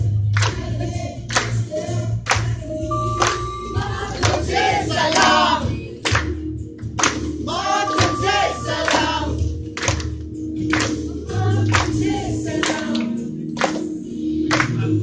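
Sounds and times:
group of voices singing: 0.0 - 6.4, 7.3 - 9.6, 10.8 - 15.0
regular beat: 2.3 - 13.0.

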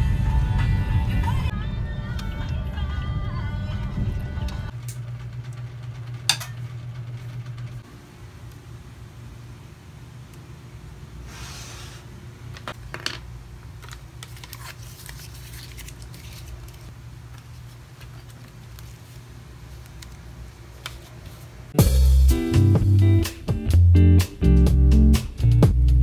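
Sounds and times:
music: 0.0 - 4.7, 21.8 - 26.0
low room hum: 0.0 - 21.8
paper cards rustling: 13.6 - 21.5.

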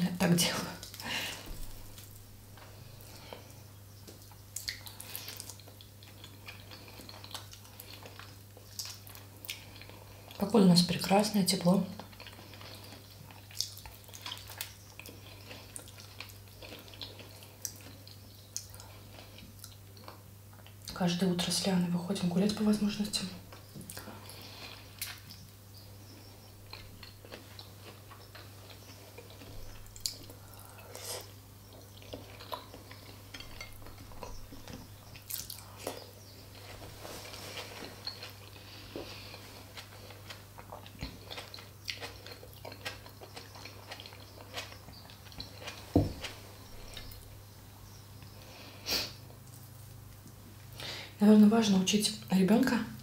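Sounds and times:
person chewing food: 0.8 - 10.4, 12.0 - 20.9, 23.5 - 50.9.

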